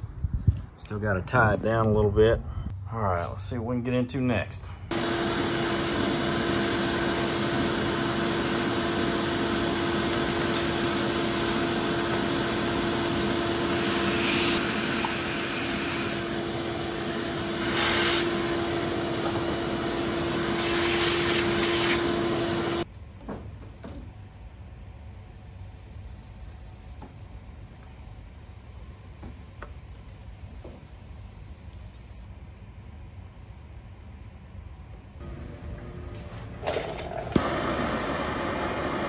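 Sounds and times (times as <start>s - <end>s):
shop vacuum humming: 4.9s - 22.9s, 35.2s - 39.0s
vacuum hose rasps: 17.4s - 22.8s.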